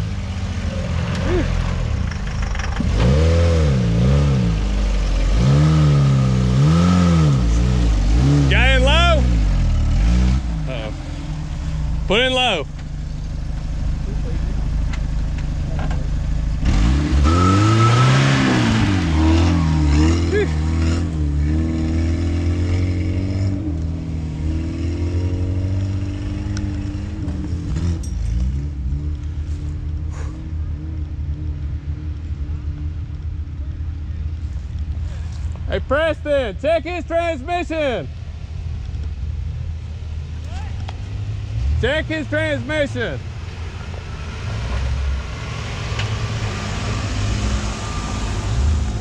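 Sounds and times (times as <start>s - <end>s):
engine revving: 0.0s - 12.7s, 15.6s - 32.9s, 41.3s - 49.0s.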